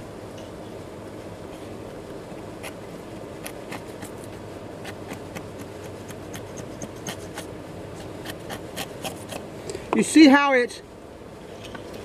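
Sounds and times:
chisel tearing wood fibers: 3.4s - 9.4s.

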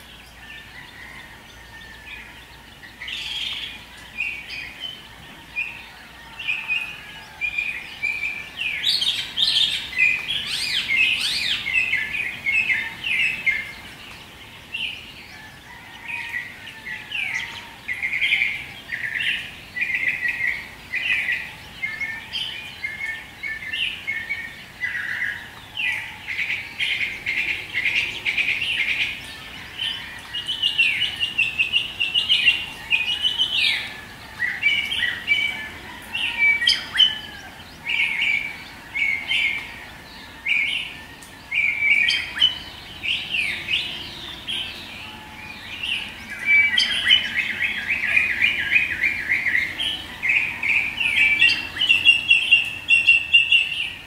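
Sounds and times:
songbirds chirping and singing: 0.0s - 54.0s
bird trill: 17.2s - 54.0s.

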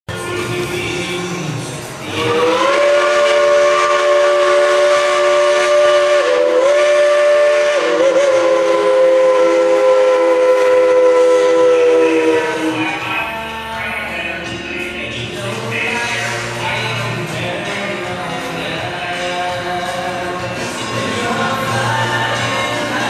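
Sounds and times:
steam locomotive whistle: 2.0s - 13.1s.

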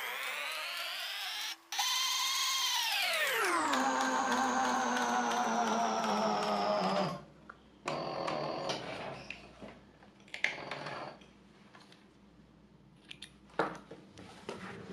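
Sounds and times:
sewing machine motor whining: 0.0s - 7.2s.

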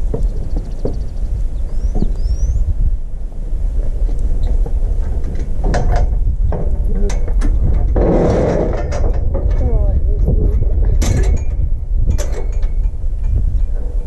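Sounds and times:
metal rattling clatter: 3.8s - 14.0s
metal chute clanking: 4.4s - 14.0s.

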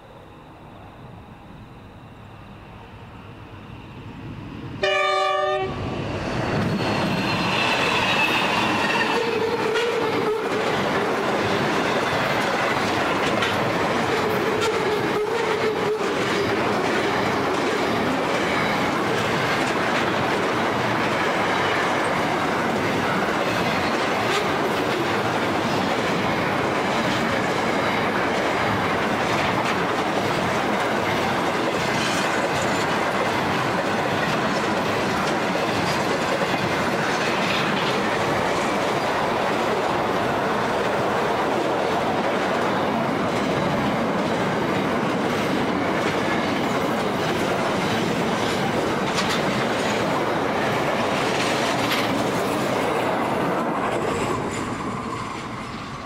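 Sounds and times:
freight train passing: 0.0s - 56.0s
train horn blast: 4.8s - 5.8s, 15.1s - 16.0s
wheels clicking over rail joints: 40.6s - 53.2s.

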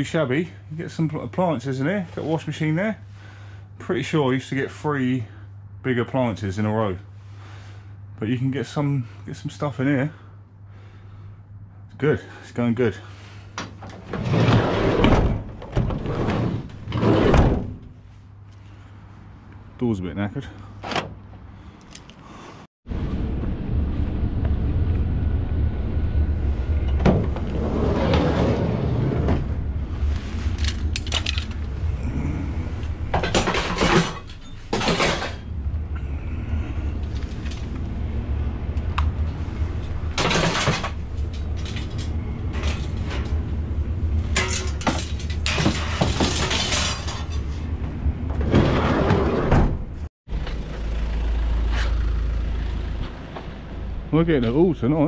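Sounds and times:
junk items clattering and rattling: 13.3s - 18.0s, 30.4s - 37.8s, 39.4s - 49.8s
steady low rumble: 22.9s - 48.6s.

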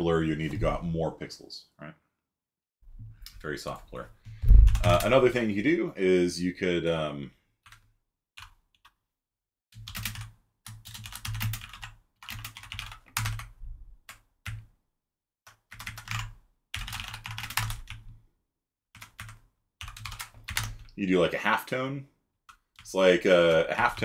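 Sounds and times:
typing on computer keyboard: 4.5s - 5.2s, 7.7s - 9.0s, 9.8s - 14.7s, 15.5s - 18.2s, 19.0s - 21.0s.

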